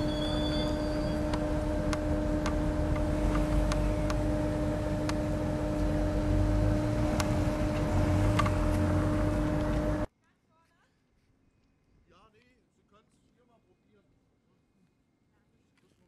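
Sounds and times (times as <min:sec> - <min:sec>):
electric train hum and rumble: 0:00.0 - 0:10.1.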